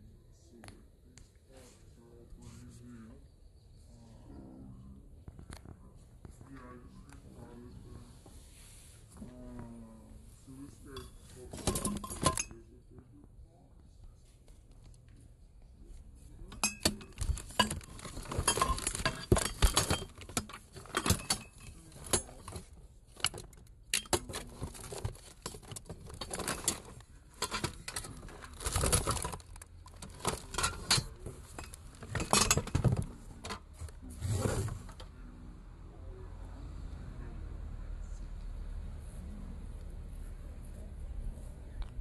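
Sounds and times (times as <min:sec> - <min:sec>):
small hard objects clinking: 0:16.6 - 0:22.6.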